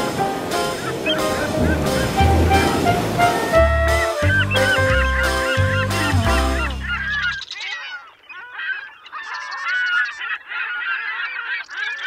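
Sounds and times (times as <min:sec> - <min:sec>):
music: 0:00.0 - 0:07.4
flock of birds calling: 0:00.6 - 0:12.0.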